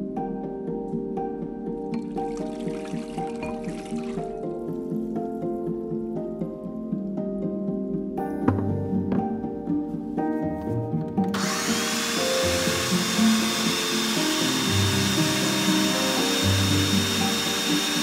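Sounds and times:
background music: 0.0s - 18.0s
blender motor whirring: 11.3s - 18.0s.

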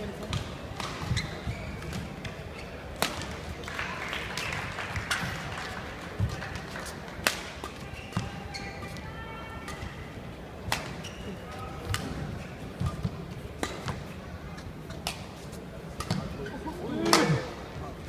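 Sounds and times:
murmur of voices: 0.0s - 18.0s
racket striking shuttlecock: 12.8s - 14.0s.

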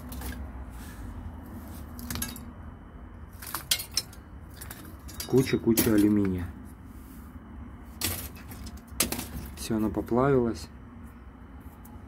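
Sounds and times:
metal scraps clinking: 3.3s - 6.5s, 8.0s - 10.0s.

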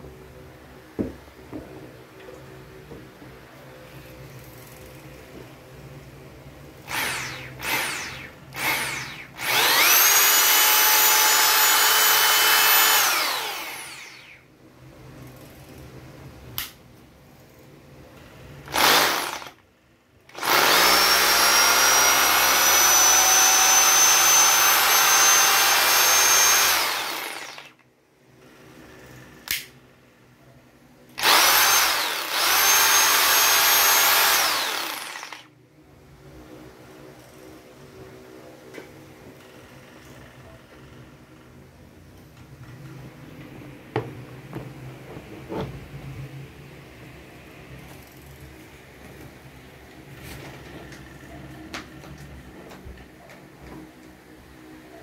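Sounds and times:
rotary hammer motor whining: 6.9s - 14.4s, 20.3s - 27.7s, 31.2s - 35.4s.

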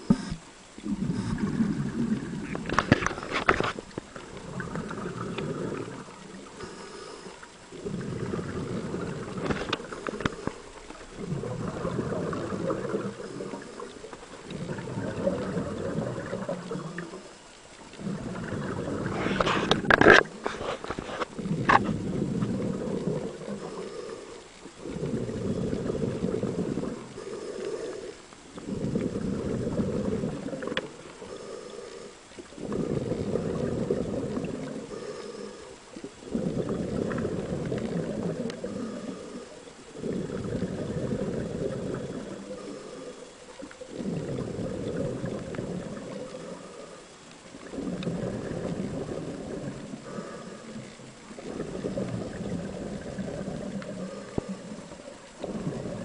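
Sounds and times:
diver exhaling bubbles underwater: 0.0s - 56.0s.

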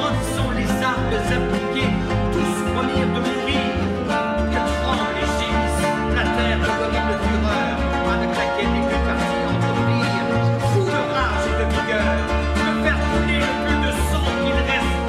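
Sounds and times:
moving bass line: 0.0s - 15.0s
music with plucked strings: 0.0s - 15.0s.

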